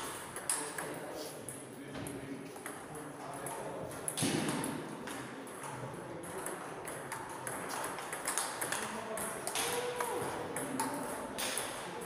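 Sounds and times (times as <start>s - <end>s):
table tennis ball clicking: 4.1s - 11.8s.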